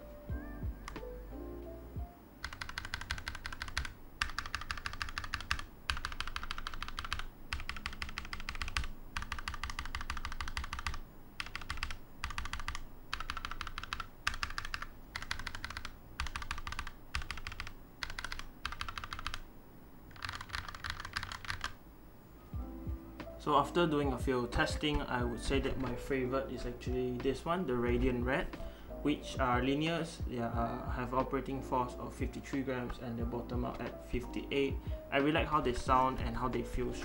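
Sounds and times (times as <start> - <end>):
mechanical keyboard typing: 2.4 - 19.5, 20.1 - 21.8, 24.9 - 26.0.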